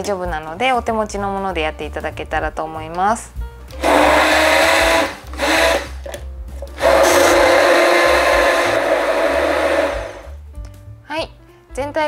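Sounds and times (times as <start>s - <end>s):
stick blender running: 3.7s - 10.4s.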